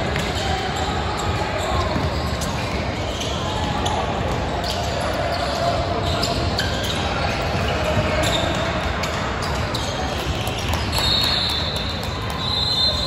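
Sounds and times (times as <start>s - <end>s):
basketball bouncing on wooden court: 0.0s - 2.6s
gym hall din: 0.0s - 13.0s
shoe squeaks on floor: 0.2s - 13.0s.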